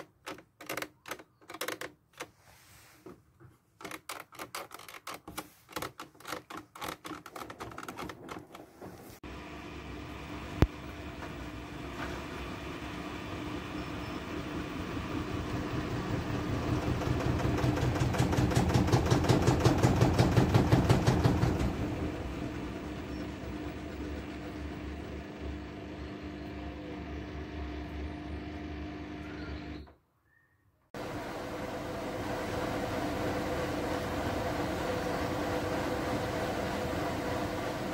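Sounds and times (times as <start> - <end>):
washing machine running: 5.7 - 29.9, 31.0 - 37.9.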